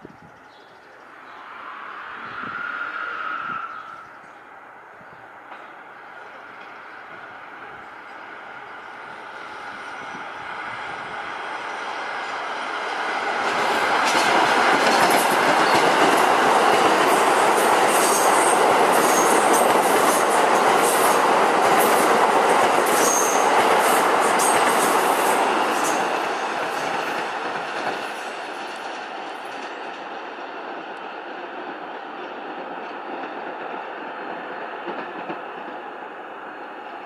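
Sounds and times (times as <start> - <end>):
subway train passing: 0.0 - 37.0
rail joint clicks: 5.4 - 8.2, 11.5 - 36.1.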